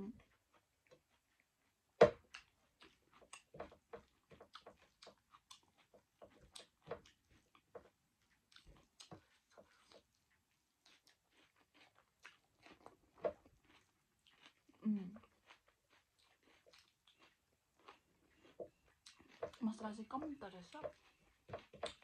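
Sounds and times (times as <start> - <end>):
person chewing: 0.2 - 22.0
lip smacks and mouth clicks: 4.4 - 6.8.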